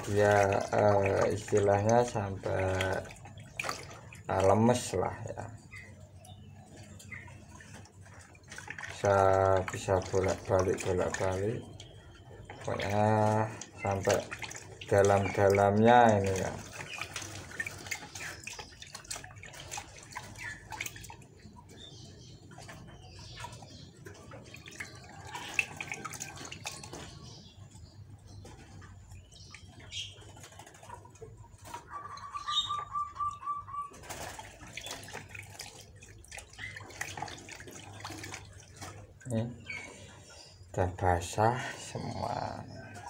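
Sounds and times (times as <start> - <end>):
water splashing in plastic basin: 0.0 - 43.0
bird call: 31.9 - 34.0.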